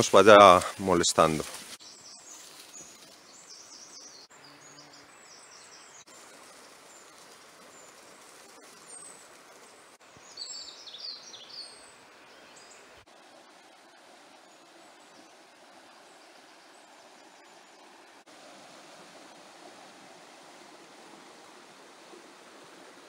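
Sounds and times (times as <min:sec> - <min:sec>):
songbirds chirping: 0:00.0 - 0:18.2.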